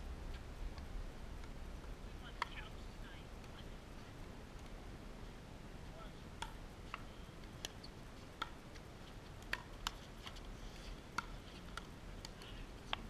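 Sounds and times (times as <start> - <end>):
pickleball paddle hitting ball: 6.4 - 10.4, 11.1 - 13.0.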